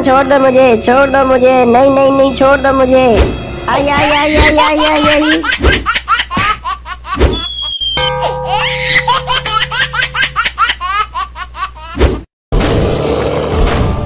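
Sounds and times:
high-pitched cartoon voice crying: 3.7 - 5.8
short high whistling tone: 7.4 - 8.1.

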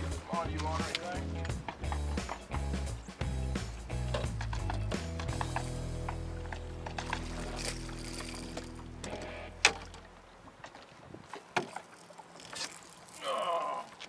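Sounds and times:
boat motor humming: 0.0 - 14.0.

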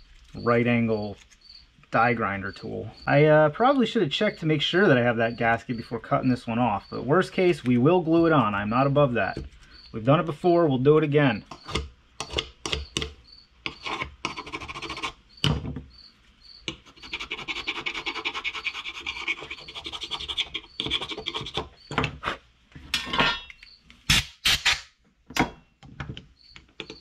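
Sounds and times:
metal scraper rasping: 11.5 - 15.2, 16.7 - 21.7.

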